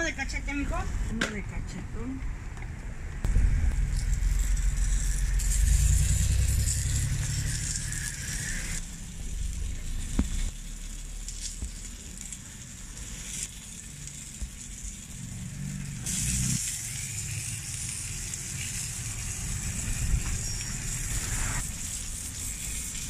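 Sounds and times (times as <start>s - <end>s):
low rumble: 0.4s - 12.0s
food sizzling on a griddle: 3.7s - 23.0s.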